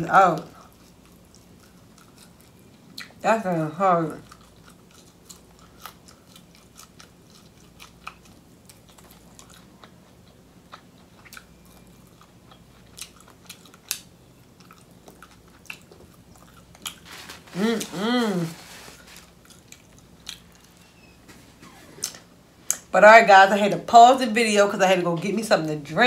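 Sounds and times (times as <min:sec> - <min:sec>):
close-up chewing: 0:00.3 - 0:03.2, 0:04.1 - 0:20.9.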